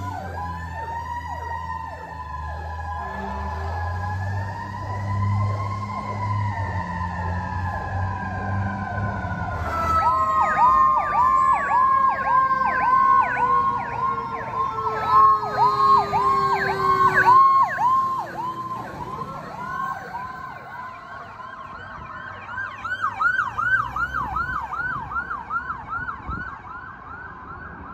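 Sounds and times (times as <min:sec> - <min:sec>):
electronic siren yelping: 0:00.0 - 0:21.3
higher yelping siren: 0:00.0 - 0:26.4.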